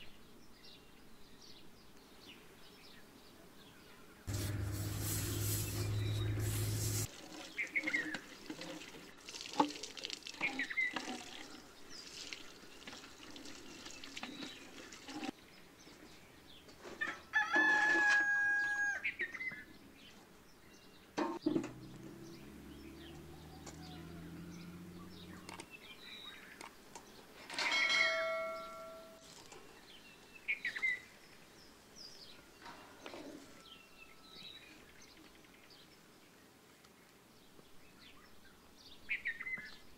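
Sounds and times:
small birds chirping: 0:00.1 - 0:08.5, 0:19.2 - 0:27.4
rooster crowing: 0:17.3 - 0:19.1, 0:22.6 - 0:25.4.

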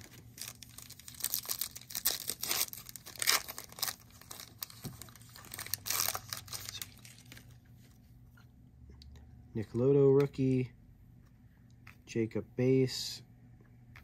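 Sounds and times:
wrapper tearing and crinkling: 0:00.0 - 0:07.6.

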